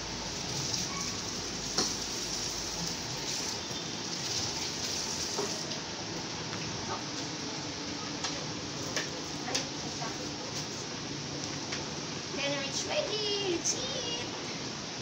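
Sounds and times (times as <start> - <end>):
heavy rain: 0.0 - 8.8.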